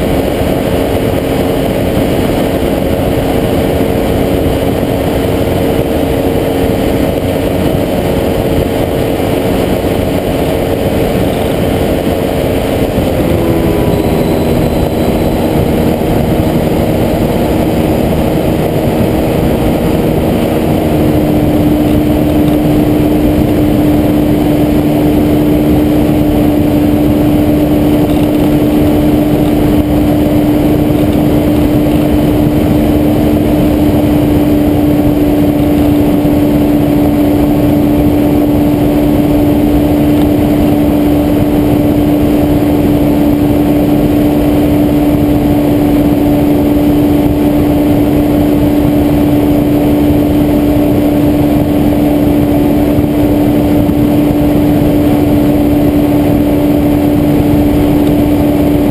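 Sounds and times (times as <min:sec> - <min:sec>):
engine and propeller droning: 0:00.0 - 0:58.9.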